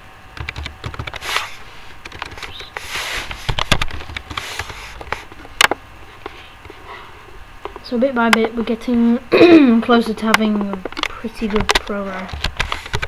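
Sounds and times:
keyboard typing: 0.4 - 1.3, 2.0 - 2.8, 3.5 - 5.2.

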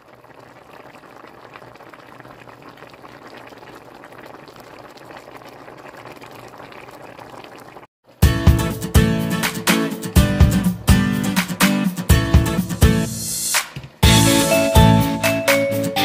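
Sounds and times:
soup bubbling at a boil: 0.0 - 8.2
strummed acoustic guitar music: 8.2 - 13.1.

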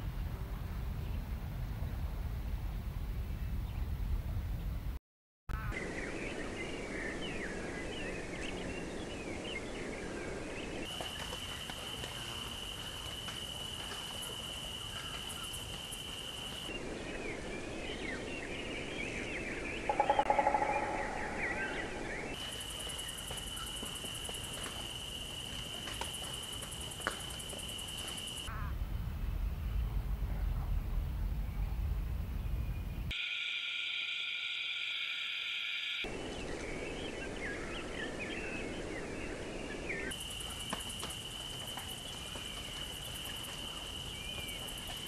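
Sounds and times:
birds chirping: 5.6 - 25.3, 32.3 - 45.0
high-pitched insect drone: 33.1 - 36.1.

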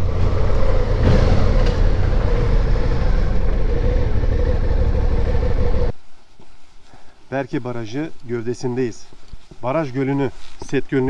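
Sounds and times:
low wind rumble on microphone: 0.0 - 6.0.

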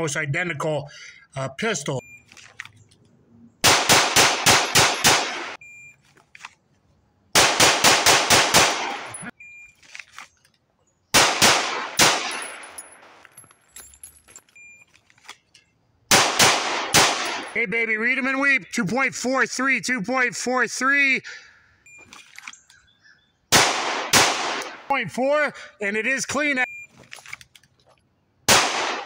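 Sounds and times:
rapid pistol shots: 3.6 - 5.6, 7.4 - 9.3, 11.1 - 12.6, 16.1 - 17.6, 23.5 - 24.9, 28.5 - 29.0.

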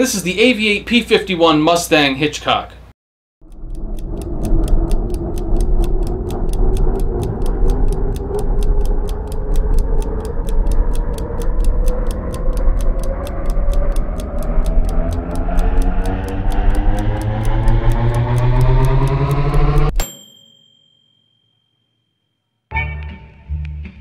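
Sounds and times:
low rising drone: 3.4 - 20.0
clock-like ticking: 3.4 - 20.1.

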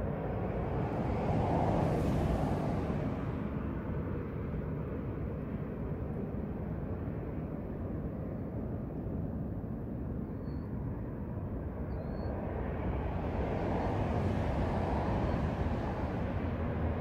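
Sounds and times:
road traffic rumble: 0.0 - 5.3, 11.0 - 17.0.

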